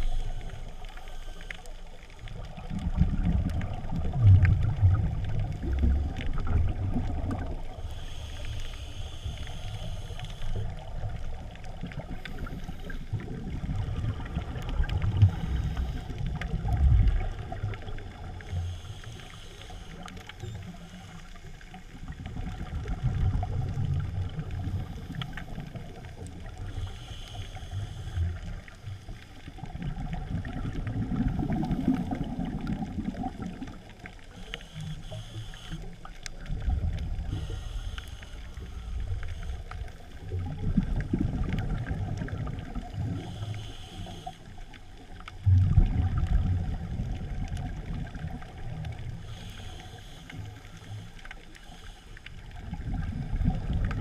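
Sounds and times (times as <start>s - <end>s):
faint clicks: 0.0s - 13.3s, 14.2s - 54.0s
underwater rushing rumble: 2.2s - 7.8s, 10.6s - 18.5s, 21.9s - 26.8s, 28.0s - 33.9s, 36.4s - 43.4s, 45.4s - 49.3s, 52.4s - 54.0s.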